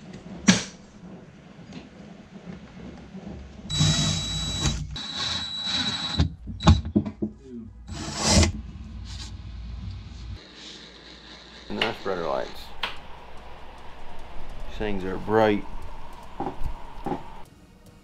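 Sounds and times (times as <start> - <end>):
sharp knocks: 16.2 - 17.4.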